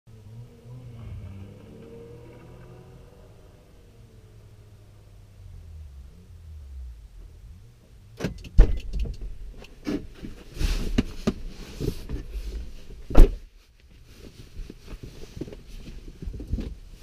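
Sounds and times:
clicks and rustling in car cabin: 8.2s - 17.0s.

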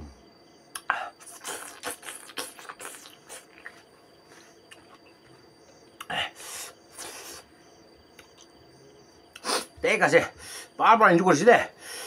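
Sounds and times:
wet lip smacks and chewing: 0.8s - 3.8s
loud breathy sniff: 6.2s - 7.5s, 9.4s - 9.8s.

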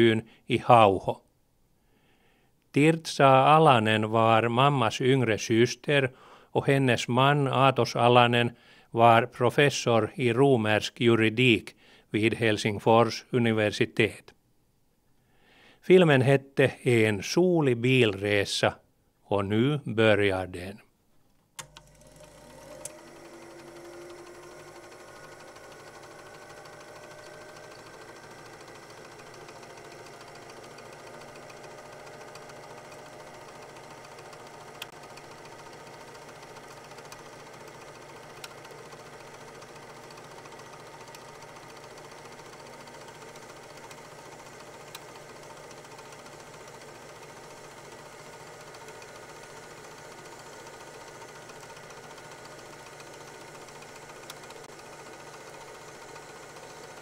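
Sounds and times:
film projector clattering: 21.6s - 57.0s.

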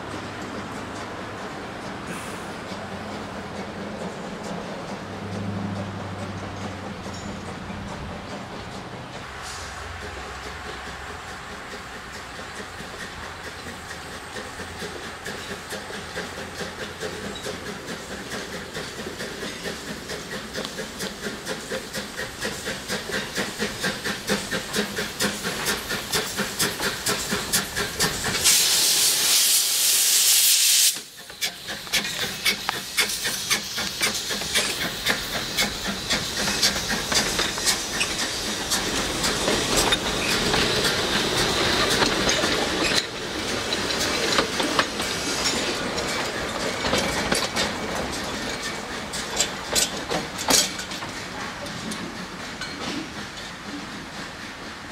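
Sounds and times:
steam locomotive exhaust chuffs: 0.0s - 54.9s
train wheels clattering: 0.0s - 54.9s
loud hiss of steam: 2.0s - 2.9s, 9.2s - 54.9s.

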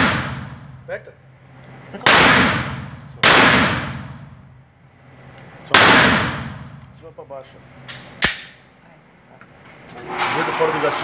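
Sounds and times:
pistol shots echoing indoors: 0.0s - 0.8s, 2.0s - 4.4s, 5.7s - 6.8s.

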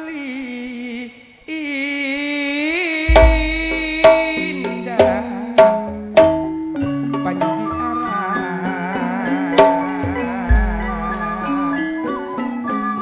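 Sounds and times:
deep drum hit: 3.1s - 6.5s, 10.5s - 11.5s
sharp drum strikes: 3.1s - 6.6s, 10.5s - 11.4s
held melody notes: 3.1s - 13.0s.

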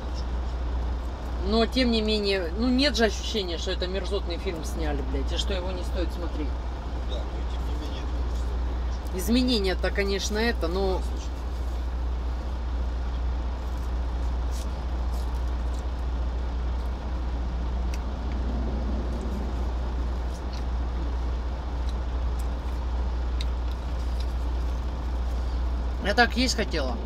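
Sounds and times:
truck engine idling: 0.0s - 27.0s
faint clicks and rustles: 7.6s - 26.0s.

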